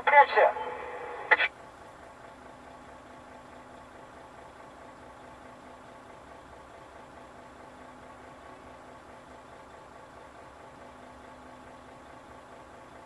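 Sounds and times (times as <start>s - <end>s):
radio chatter: 0.0s - 1.5s
truck engine idling: 0.0s - 13.0s.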